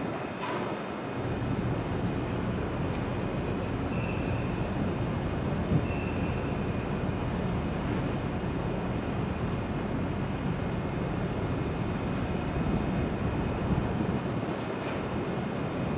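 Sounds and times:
ferry machinery rumble: 0.0 - 15.9
faint high whine: 2.4 - 9.8.

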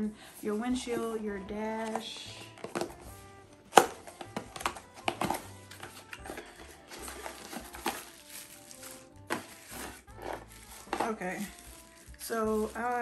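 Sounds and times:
faint music: 0.0 - 13.0
plastic parts clicking and rustling: 3.7 - 13.0.

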